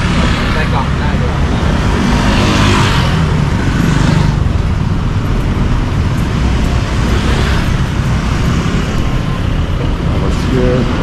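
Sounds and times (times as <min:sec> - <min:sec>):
vehicle passing close by: 0:00.0 - 0:05.1
road traffic rumble: 0:00.0 - 0:11.0.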